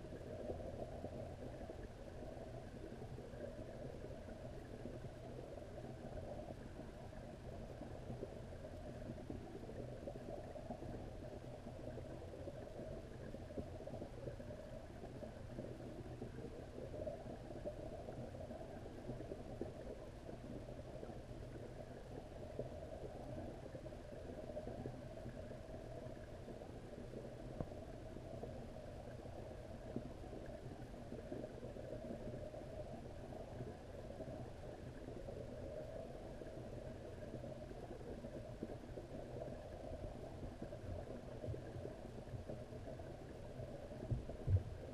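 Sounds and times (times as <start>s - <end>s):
faint ticks: 0.0s - 44.9s
muffled underwater rumble: 0.0s - 44.9s.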